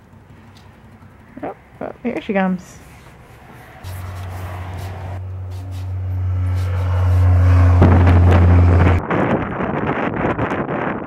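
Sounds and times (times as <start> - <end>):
low machine hum: 0.0 - 9.0
wind buffeting microphone: 3.1 - 11.0.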